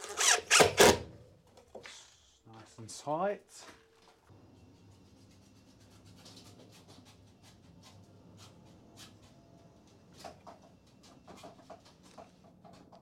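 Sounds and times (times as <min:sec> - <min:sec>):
cordless drill driving screw: 0:00.0 - 0:01.0.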